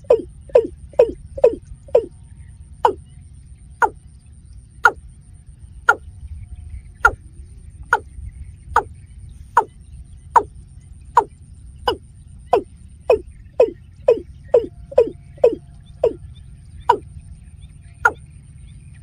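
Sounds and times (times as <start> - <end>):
bird's sharp downward call: 11.9 - 16.2.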